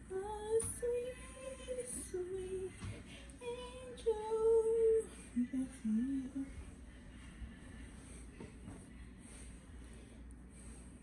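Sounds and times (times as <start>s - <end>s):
woman singing slow tune: 0.0s - 6.8s.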